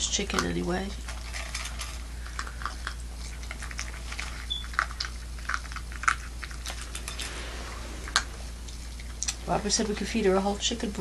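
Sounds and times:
puppy chewing from metal bowl: 0:00.1 - 0:06.9.

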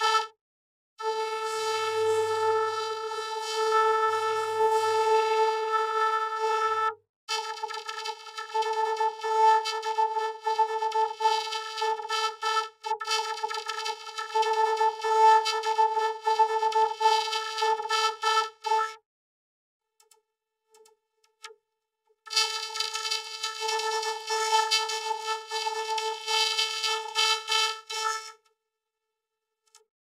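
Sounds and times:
buzzy synthesizer horn tone: 0:01.0 - 0:06.9.

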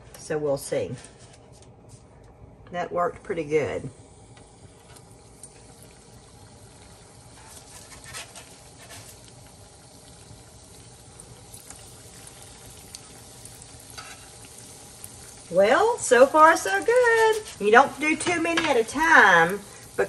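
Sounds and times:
doughnuts sizzling in oil: 0:03.2 - 0:20.0.

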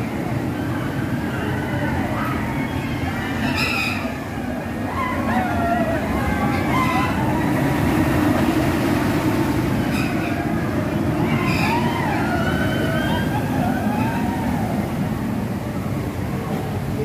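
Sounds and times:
roller coaster rumbling on track: 0:00.0 - 0:17.0
high wavering squeals: 0:09.7 - 0:14.7.

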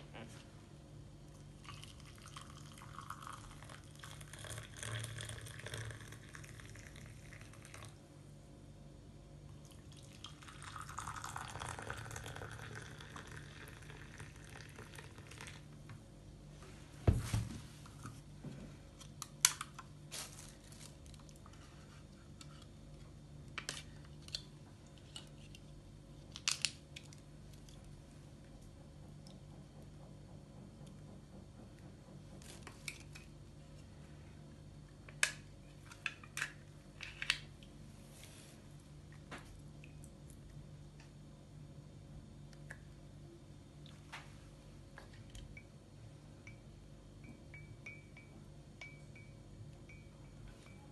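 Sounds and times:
water poured into a ceramic mug: 0:01.6 - 0:08.0, 0:09.6 - 0:15.7
plastic cups peeled open: 0:23.6 - 0:27.2.

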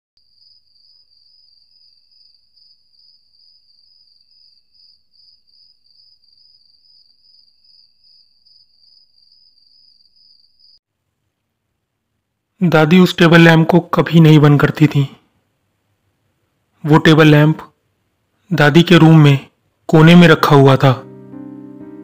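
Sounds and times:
faint crickets chirping: 0:00.2 - 0:13.1.

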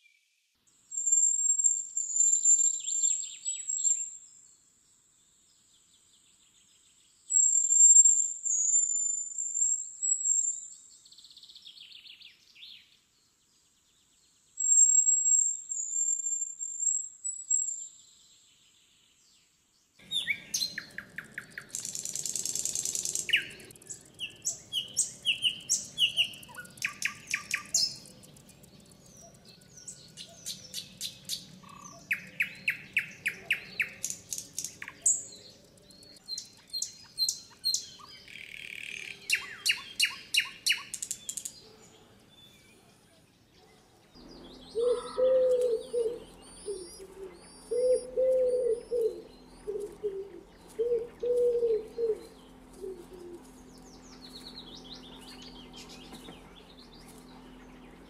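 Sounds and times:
songbirds chirping and trilling: 0:00.0 - 0:58.0
dove cooing: 0:44.7 - 0:53.6.

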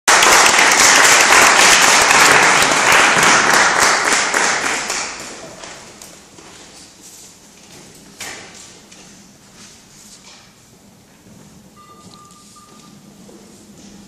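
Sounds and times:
audience applauding: 0:00.1 - 0:05.9.

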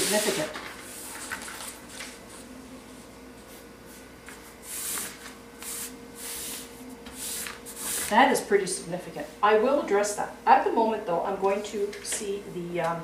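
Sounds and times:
paper rustling and sliding: 0:00.0 - 0:02.4, 0:04.6 - 0:08.2.

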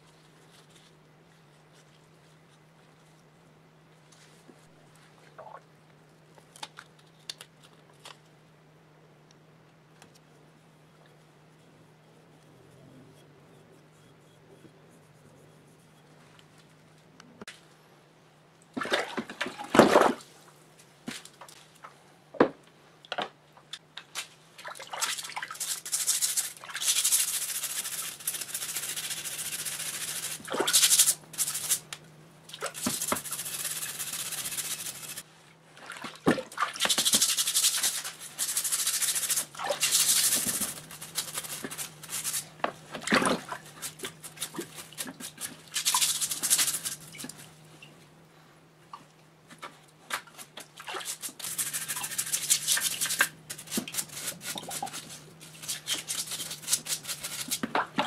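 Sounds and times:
stiff brush scrubbing metal parts: 0:25.4 - 0:31.9, 0:32.6 - 0:35.3, 0:36.7 - 0:47.5, 0:50.1 - 0:57.7.

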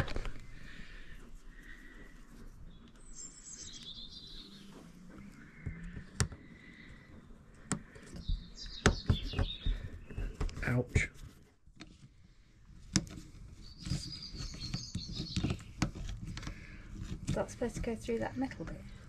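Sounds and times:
small bird twittering: 0:02.7 - 0:04.8, 0:08.2 - 0:09.8, 0:13.6 - 0:15.7.

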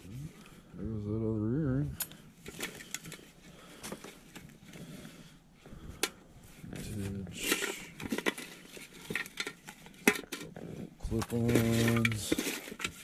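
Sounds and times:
paper rustling: 0:06.5 - 0:13.0.

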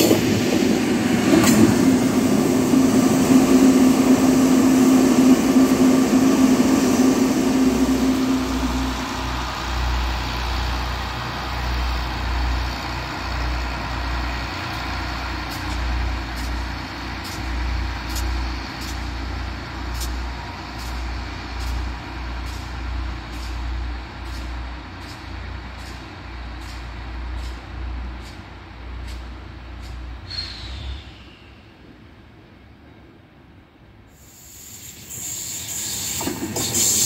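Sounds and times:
diesel railcar engines throbbing: 0:00.0 - 0:37.0.

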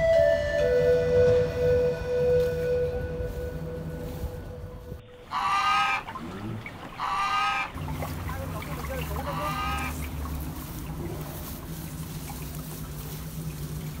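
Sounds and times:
goose honking: 0:03.9 - 0:14.0.

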